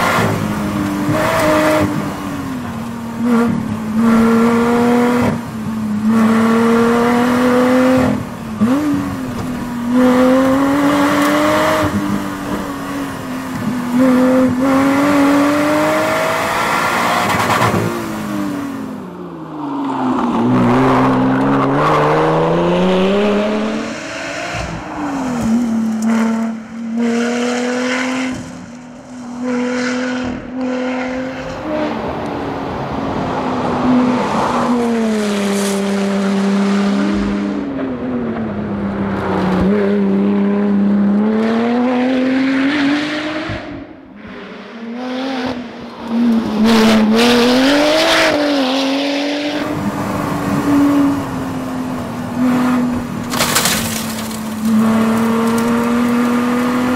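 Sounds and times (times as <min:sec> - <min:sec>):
car engine revving hard: 0:03.2 - 0:18.8, 0:20.6 - 0:28.7, 0:39.6 - 0:56.9.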